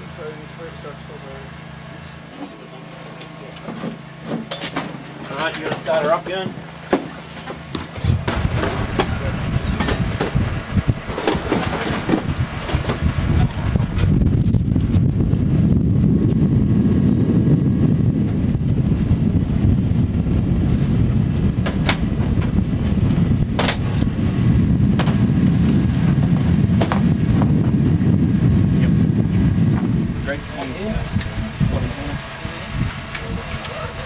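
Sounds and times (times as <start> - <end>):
loud low rumble: 8.0 - 34.0.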